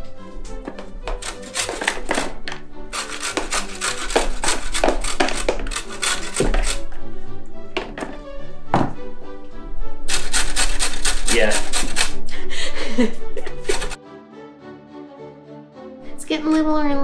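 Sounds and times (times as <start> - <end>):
background music: 0.0 - 17.0
carrot grating on metal grater: 1.1 - 6.9, 10.1 - 12.2, 13.5 - 14.0.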